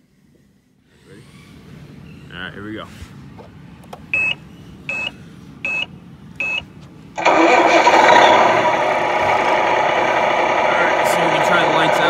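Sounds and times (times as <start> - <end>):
simulated truck engine running: 4.1 - 12.0
short beeps: 4.2 - 6.6.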